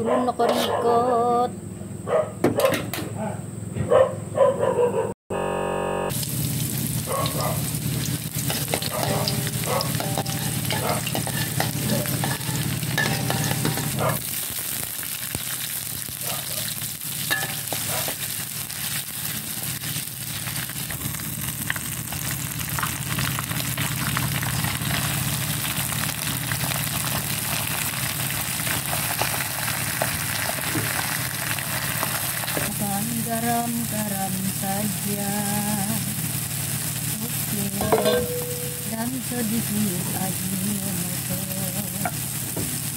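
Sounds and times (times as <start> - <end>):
low background hum: 6.1 - 14.9, 32.2 - 42.6
oil sizzling in a wok: 6.1 - 42.9.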